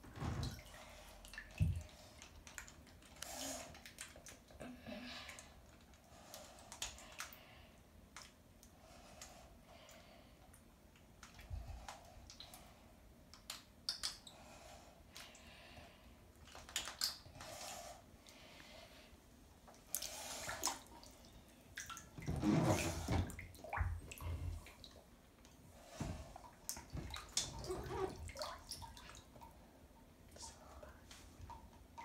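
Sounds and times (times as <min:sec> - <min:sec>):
bathwater sloshing and splashing: 0:00.0 - 0:04.6, 0:19.6 - 0:29.8.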